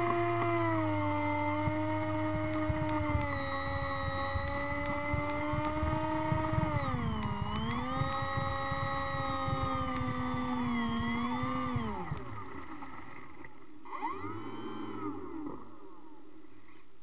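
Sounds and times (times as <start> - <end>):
model plane motor and propeller: 0.0 - 16.8.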